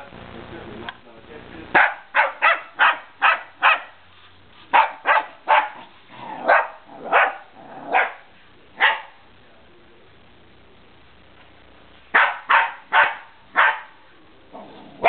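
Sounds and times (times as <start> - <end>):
puppy barking: 1.7 - 4.0, 4.7 - 9.2, 12.1 - 14.0.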